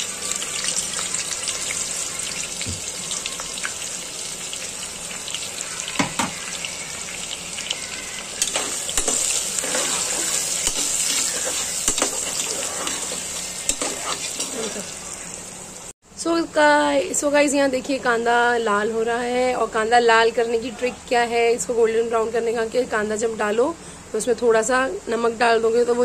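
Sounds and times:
onions sizzling in hot oil: 0.0s - 16.0s
metal ladle scraping pot: 8.4s - 14.8s.

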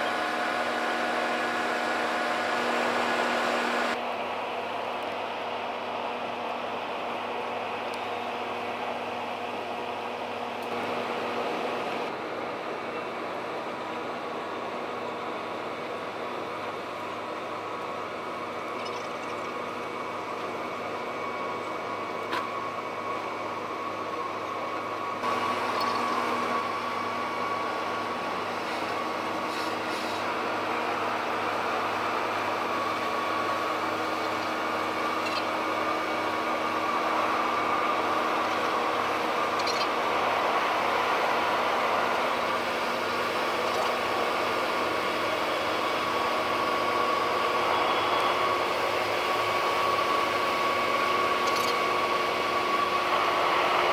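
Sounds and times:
held whining tones: 0.0s - 4.0s, 18.8s - 53.9s
ship machinery hum and hiss: 0.0s - 53.9s.

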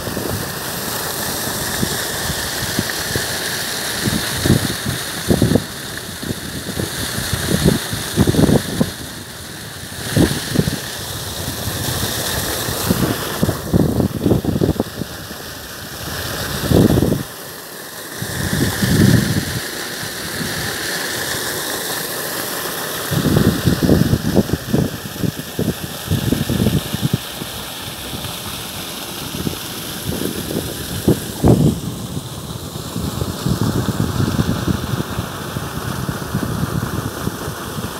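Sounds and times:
wind buffeting microphone: 4.0s - 15.3s, 16.0s - 17.3s, 18.2s - 19.7s, 23.1s - 27.3s, 29.4s - 37.9s.

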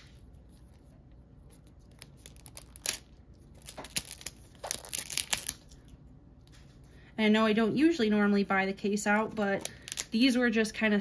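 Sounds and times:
plastic packaging tearing and crinkling: 1.5s - 5.9s.

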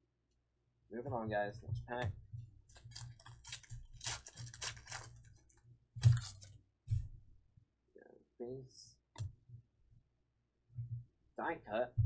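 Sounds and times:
foil wrapper crinkling: 2.7s - 6.5s.

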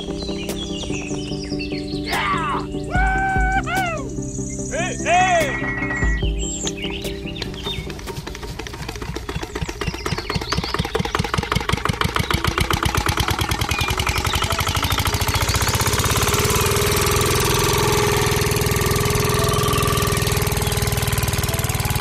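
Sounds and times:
engine whine: 0.0s - 22.0s
model diesel engine chugging: 6.4s - 22.0s.

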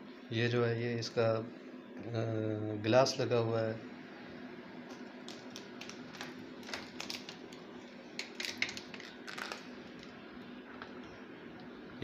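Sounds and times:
hands handling plastic-wrapped lid: 5.3s - 10.1s.

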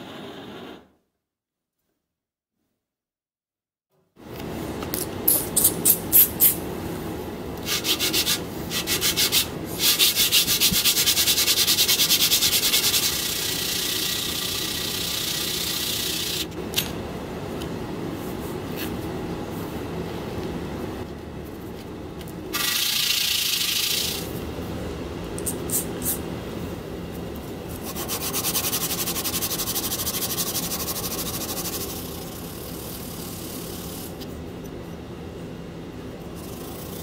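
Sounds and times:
steel sanded on sandpaper: 7.7s - 16.4s.

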